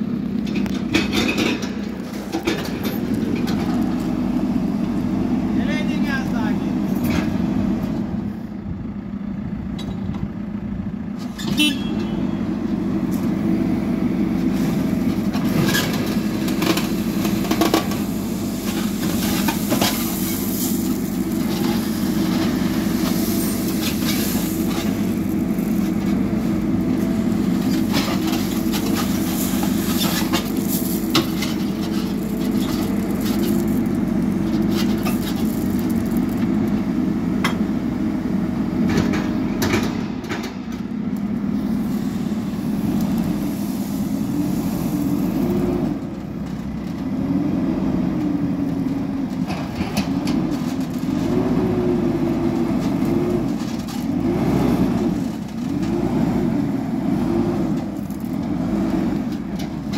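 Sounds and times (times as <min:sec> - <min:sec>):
diesel engine running under load: 0:00.0 - 0:59.9
stones and bucket clattering: 0:15.1 - 0:36.9.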